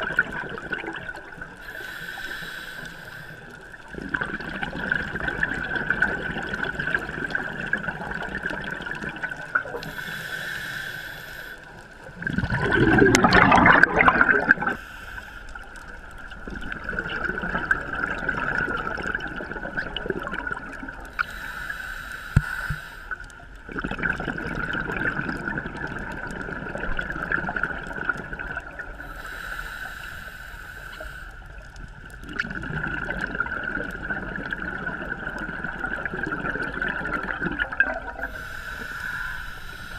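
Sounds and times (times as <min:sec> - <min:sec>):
gush of exhaled bubbles: 0:00.0 - 0:01.6, 0:03.9 - 0:10.1, 0:12.0 - 0:14.8, 0:16.3 - 0:21.2, 0:23.6 - 0:29.1, 0:32.0 - 0:39.9
hissing regulator breaths: 0:01.6 - 0:03.7, 0:09.8 - 0:12.0, 0:14.7 - 0:16.0, 0:21.2 - 0:23.3, 0:29.0 - 0:31.6, 0:38.2 - 0:39.9.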